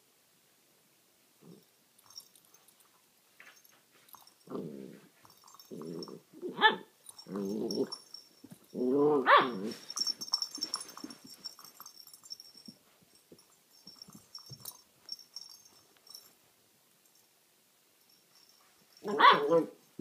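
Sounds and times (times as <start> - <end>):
puppy grumbling and yelping: 4.4 - 8.1, 8.7 - 11.3, 19.0 - 19.8.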